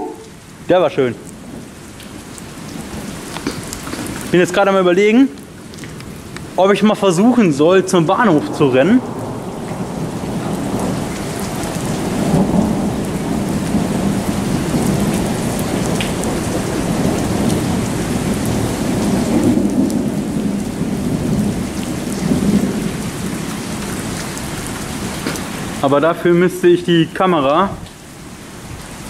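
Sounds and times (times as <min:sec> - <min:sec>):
heavy rain pouring: 0:00.0 - 0:29.0
rolling thunder: 0:05.4 - 0:25.8.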